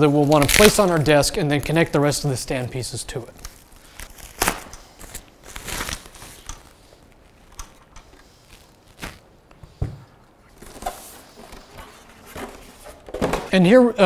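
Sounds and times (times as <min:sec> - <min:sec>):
packing foam rustling and rubbing: 0:00.0 - 0:09.3
plastic bag rustling: 0:00.0 - 0:09.3.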